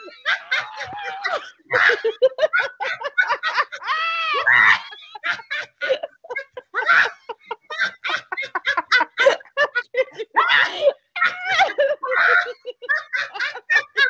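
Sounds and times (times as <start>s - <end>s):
women laughing: 0.0s - 14.0s
women roaring like lions: 3.8s - 5.0s.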